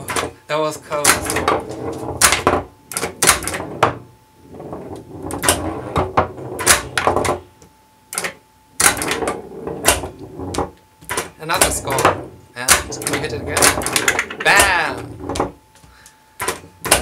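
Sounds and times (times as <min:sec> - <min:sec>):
faint steady hum: 0:00.0 - 0:17.0
pinball flippers clacking: 0:01.0 - 0:04.0, 0:04.8 - 0:07.4, 0:08.2 - 0:15.5, 0:16.4 - 0:17.0
steel ball rolling and knocking: 0:01.1 - 0:07.5, 0:08.8 - 0:15.6.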